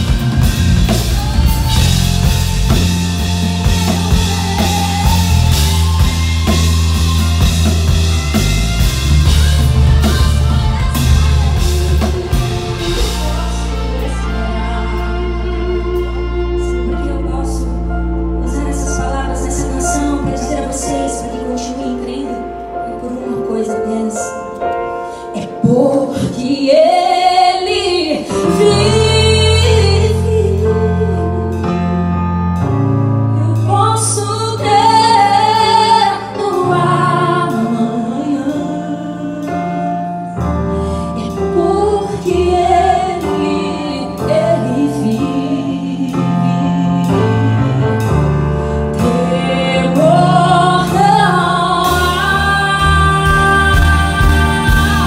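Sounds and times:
live band playing: 0.0 - 55.0
woman singing gospel song: 3.6 - 8.0, 9.0 - 24.3, 33.4 - 40.0, 41.2 - 47.8, 49.0 - 55.0.

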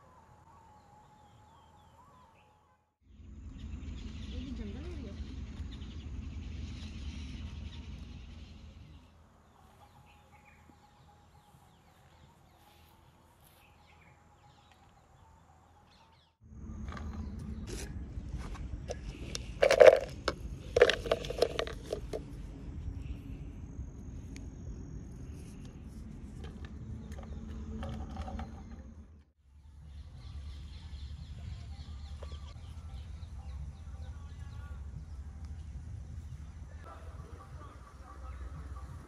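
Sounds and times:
wind rumbling on microphone: 16.5 - 39.0.

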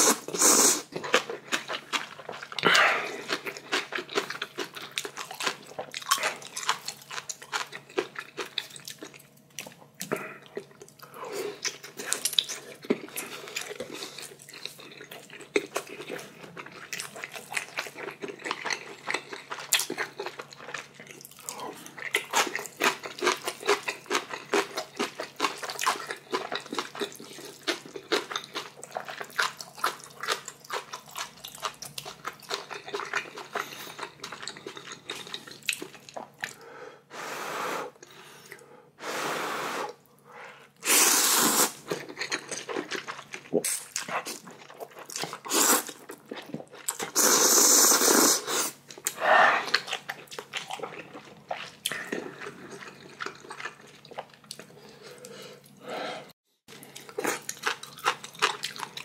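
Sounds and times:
noodle slurps: 0.0 - 0.9, 40.8 - 41.8, 47.0 - 49.9
wet chewing and lip smacking: 0.9 - 36.6, 41.8 - 47.8, 48.8 - 55.8, 56.7 - 59.0.

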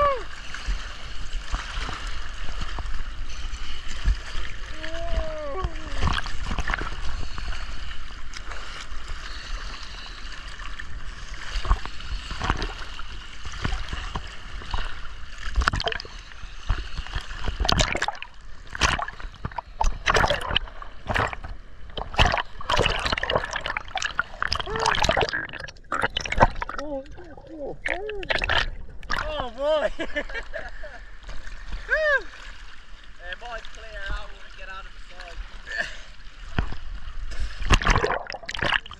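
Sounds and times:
seawater splashing and gurgling: 0.0 - 38.9
water bubbling: 4.1 - 29.7, 37.4 - 38.9.

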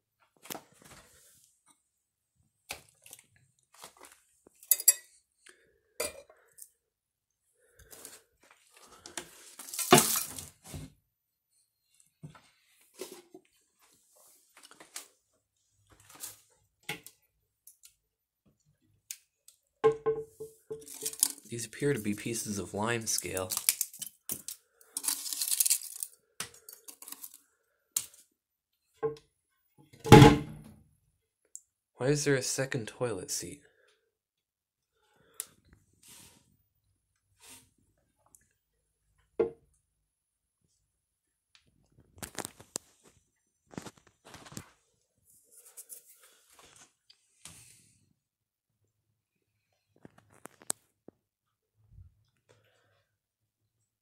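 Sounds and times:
ceramic pieces clinking and knocking: 4.6 - 5.2
toilet seat clatter: 30.1 - 30.7.

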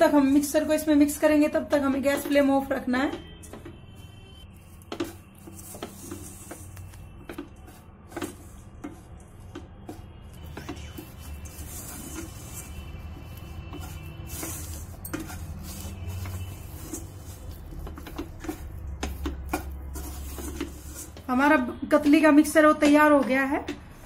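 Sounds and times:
spatula scraping a metal pan: 3.2 - 21.5.

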